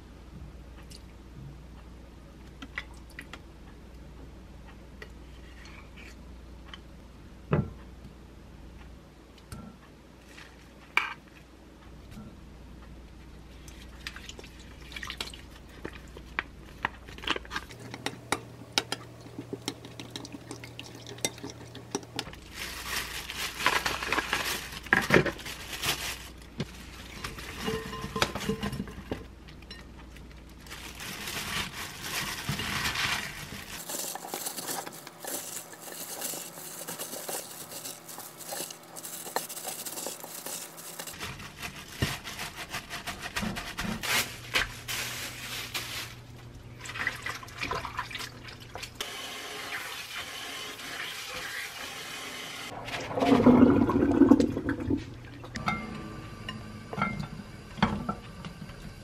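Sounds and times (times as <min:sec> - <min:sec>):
crinkling plastic glove: 0:22.2 - 0:28.8, 0:30.4 - 0:46.5.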